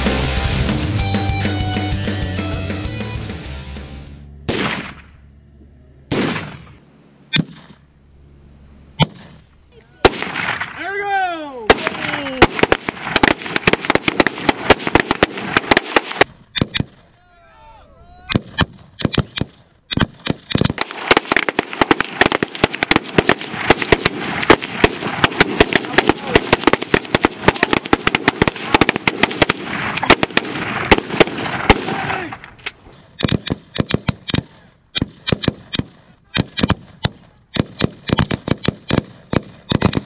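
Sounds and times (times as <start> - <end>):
gunfire volley: 4.5 - 5.2, 6.1 - 7.8, 9.0 - 10.9, 11.7 - 17.1, 18.3 - 40.0.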